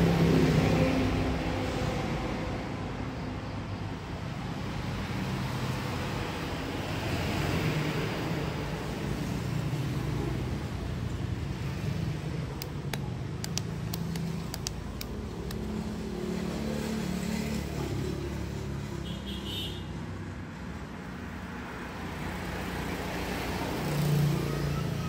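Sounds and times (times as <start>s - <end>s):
plastic housing clicks and taps: 12.6s - 15.8s.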